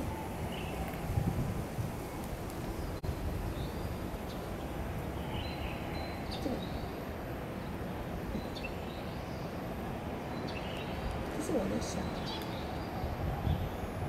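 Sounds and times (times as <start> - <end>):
faint bird chirps: 2.8 - 7.0.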